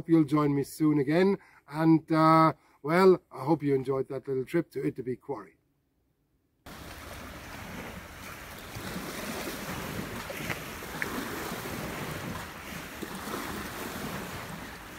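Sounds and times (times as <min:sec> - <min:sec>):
waves lapping against pier: 0:06.7 - 0:14.9
wind over microphone: 0:06.7 - 0:14.9.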